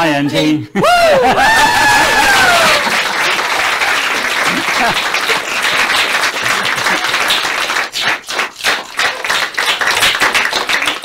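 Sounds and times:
audience applauding: 0:01.3 - 0:11.0.

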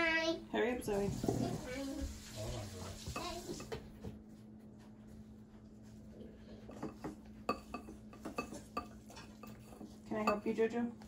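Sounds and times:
whisk stirring batter in bowl: 0:00.9 - 0:03.8, 0:06.6 - 0:10.6.

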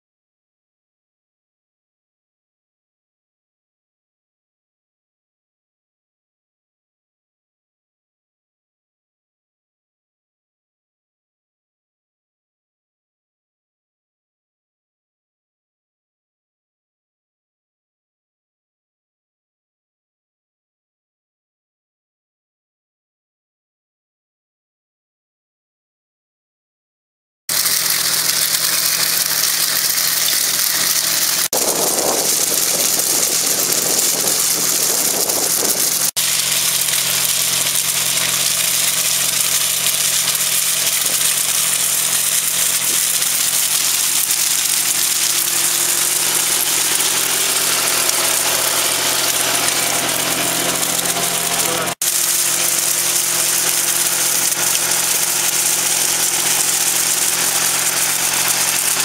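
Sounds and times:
tractor engine running: 0:27.5 - 0:59.0.

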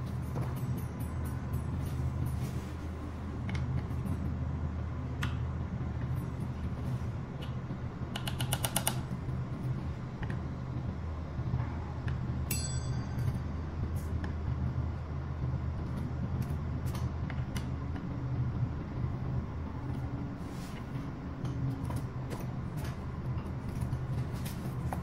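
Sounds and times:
steady low hum: 0:00.0 - 0:25.0
short metallic ring: 0:12.5 - 0:13.5.

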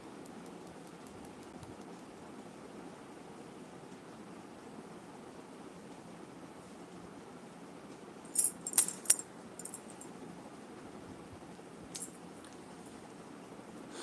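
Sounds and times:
bangles clinking and jingling: 0:08.4 - 0:10.1, 0:11.9 - 0:12.2.

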